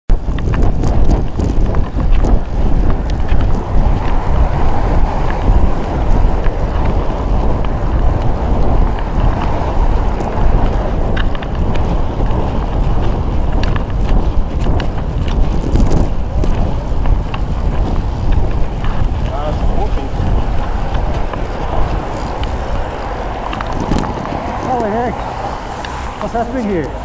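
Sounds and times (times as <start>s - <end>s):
wind rushing over microphone: 0.1s - 27.0s.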